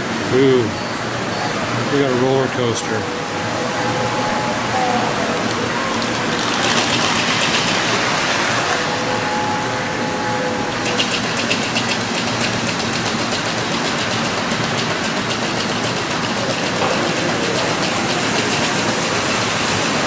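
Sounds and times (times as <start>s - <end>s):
toy trains mechanical whirr: 1.9s - 20.0s
rapid even clicking: 10.8s - 20.0s.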